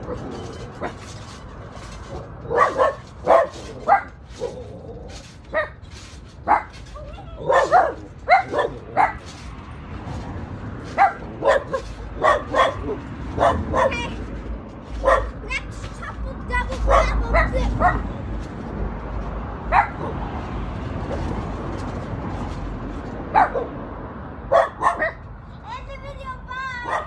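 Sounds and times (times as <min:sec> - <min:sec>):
small dog barking: 0:02.5 - 0:04.1, 0:07.4 - 0:09.2, 0:11.0 - 0:14.0, 0:15.0 - 0:15.3, 0:16.9 - 0:18.0, 0:24.5 - 0:25.2.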